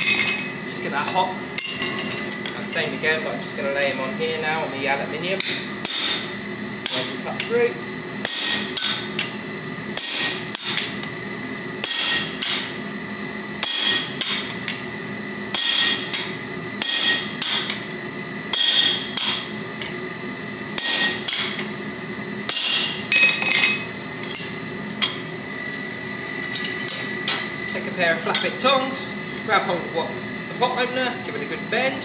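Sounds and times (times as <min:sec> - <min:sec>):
hammer striking chisel on hot steel: 0:00.0 - 0:02.6, 0:05.4 - 0:07.5, 0:08.2 - 0:09.3, 0:10.0 - 0:11.1, 0:11.8 - 0:12.8, 0:13.6 - 0:14.8, 0:15.5 - 0:17.9, 0:18.5 - 0:19.9, 0:20.8 - 0:21.7, 0:22.5 - 0:25.2.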